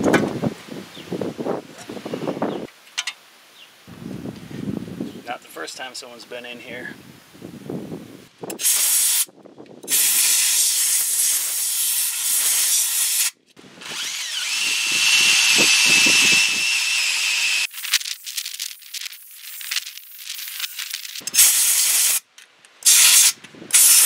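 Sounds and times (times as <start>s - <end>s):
compressed air blasts hissing: 8.5s - 13.4s, 14.8s - 24.0s.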